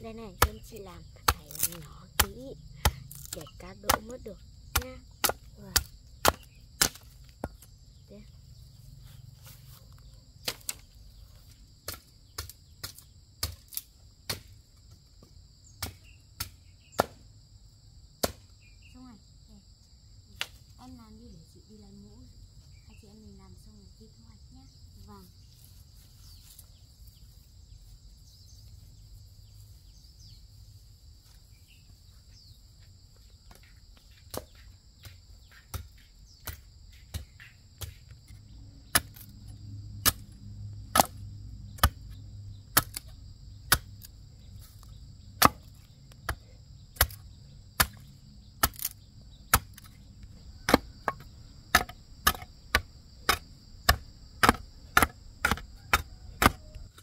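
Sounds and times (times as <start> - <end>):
insects shrilling: 0.0 - 13.0
machete chopping bamboo: 0.3 - 7.7, 10.4 - 11.0, 11.8 - 14.6, 15.8 - 17.2, 18.2 - 18.5, 38.9 - 39.4, 40.0 - 50.0, 50.6 - 57.0.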